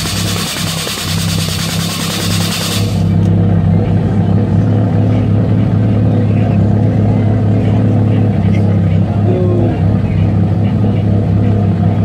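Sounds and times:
nitrous purge hissing: 0:00.0 - 0:03.1
car engine idling: 0:00.0 - 0:12.0.

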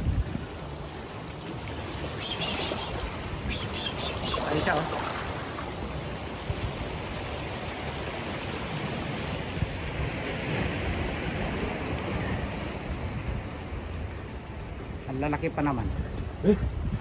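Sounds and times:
wind buffeting microphone: 0:00.0 - 0:01.1, 0:15.7 - 0:17.0.

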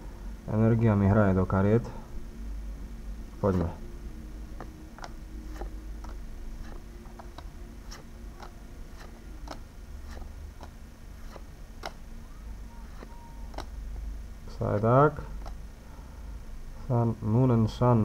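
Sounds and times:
trading cards clicking: 0:12.9 - 0:13.7.

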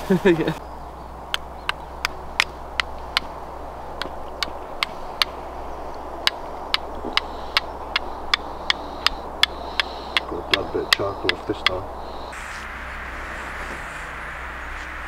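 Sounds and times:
steel striking flint clicks: 0:01.3 - 0:03.4, 0:04.0 - 0:11.8.

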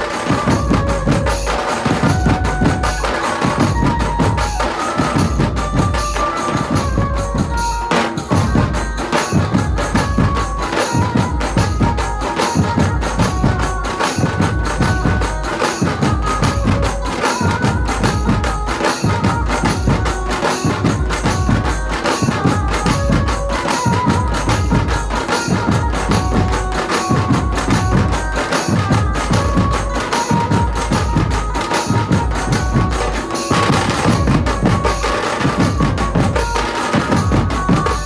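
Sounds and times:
large drums beaten in fast rhythm: 0:00.0 - 0:38.0.

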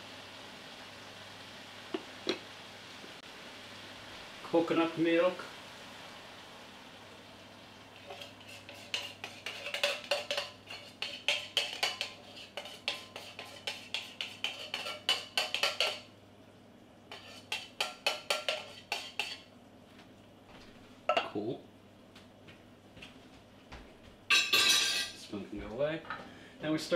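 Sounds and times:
metal spoon scraping in tin can: 0:08.0 - 0:16.0, 0:17.1 - 0:19.4.

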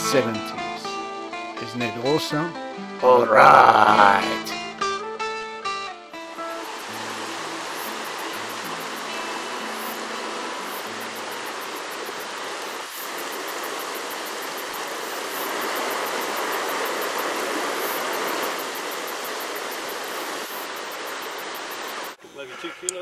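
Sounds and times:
river water rushing over rocks: 0:06.4 - 0:22.2.

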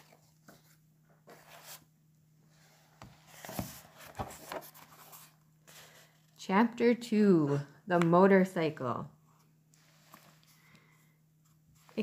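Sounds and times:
book rustling and knocking: 0:00.0 - 0:01.9, 0:02.9 - 0:05.4
paper sheet rustling: 0:00.0 - 0:01.9, 0:03.2 - 0:06.1.

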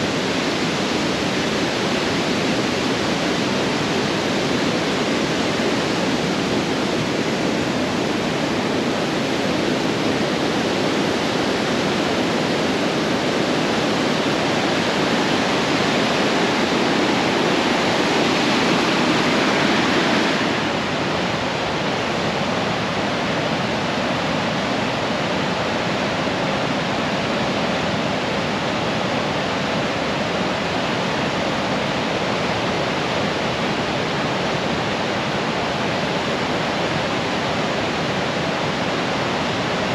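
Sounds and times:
river rapids rushing: 0:00.0 - 0:39.9.

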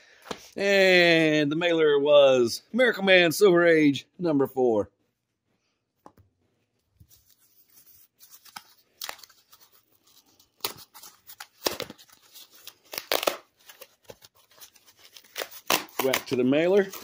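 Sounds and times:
paper and plastic crinkling: 0:07.0 - 0:17.0.

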